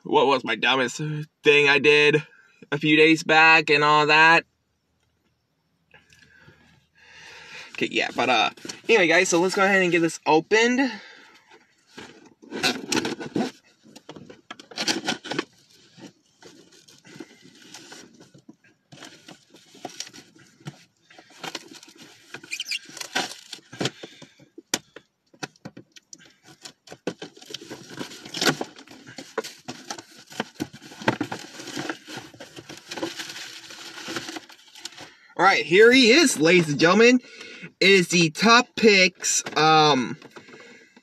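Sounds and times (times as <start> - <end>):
cardboard box being unpacked: 11.9 - 13.7, 26.5 - 35.1.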